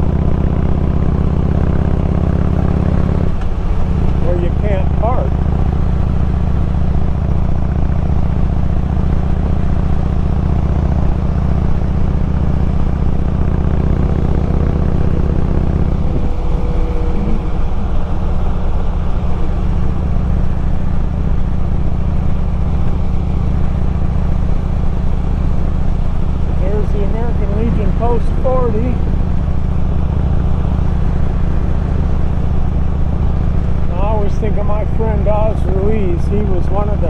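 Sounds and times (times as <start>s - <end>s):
motorcycle engine cruising: 0.0s - 37.0s
wind rushing: 15.3s - 19.0s.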